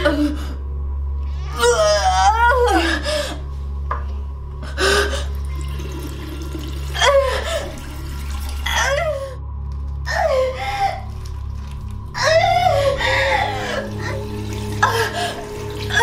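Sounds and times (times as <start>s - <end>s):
steady low drone: 0.0s - 16.0s
water running from sink tap: 5.4s - 8.8s, 14.0s - 16.0s.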